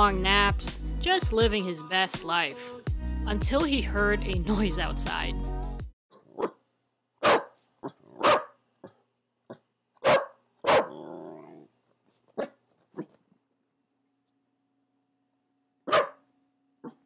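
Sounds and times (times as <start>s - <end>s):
dog barking: 6.2s - 6.6s, 7.2s - 11.1s, 12.4s - 13.2s, 15.9s - 16.2s.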